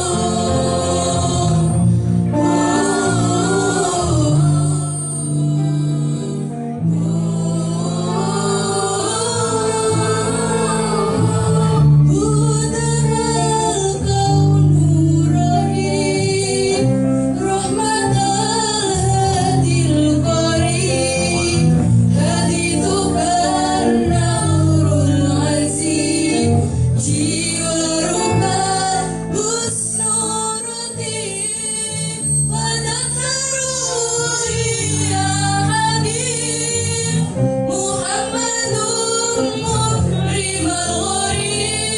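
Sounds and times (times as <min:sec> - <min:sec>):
choir of women singing: 0:00.0 - 0:41.9.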